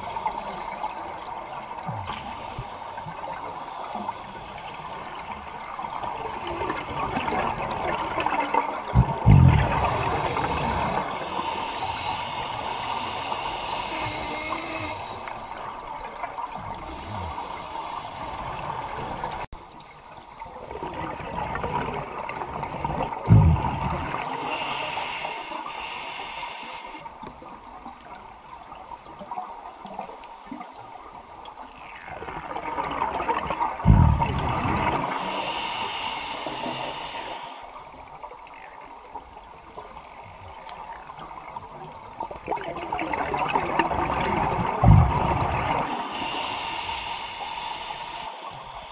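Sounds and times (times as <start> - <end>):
rushing bubbles: 4.6 - 17.5, 20.6 - 24.4, 32.1 - 35.3, 42.4 - 46.3
diver breathing through regulator: 9.1 - 15.7, 16.7 - 19.4, 23.3 - 27.2, 33.9 - 38.0, 44.9 - 48.9.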